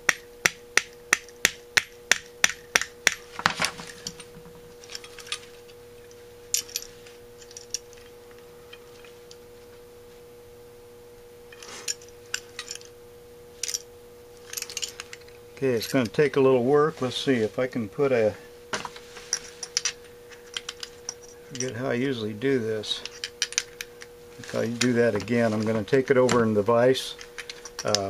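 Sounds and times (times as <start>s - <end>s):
metal parts clattering: 3.3s - 8.1s, 11.5s - 12.9s, 13.6s - 16.1s, 19.2s - 21.8s, 22.8s - 26.0s, 27.0s - 28.0s.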